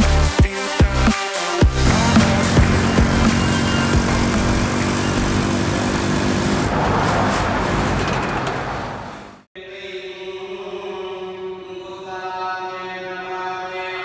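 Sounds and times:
road traffic noise: 1.7s - 9.5s
steady held chanting: 1.8s - 4.6s, 9.6s - 14.0s
trucks and motorbikes passing: 1.8s - 9.5s.

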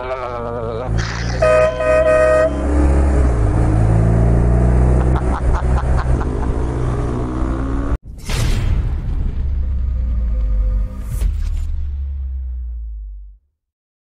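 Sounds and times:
motorcycle engine revving: 1.0s - 8.0s
vehicle horn toot: 1.4s - 2.8s.

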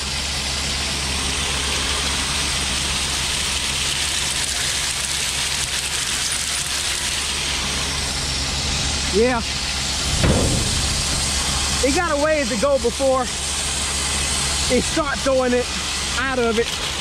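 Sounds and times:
grain machinery droning: 0.0s - 17.0s
corn pouring into bin: 2.8s - 7.6s.

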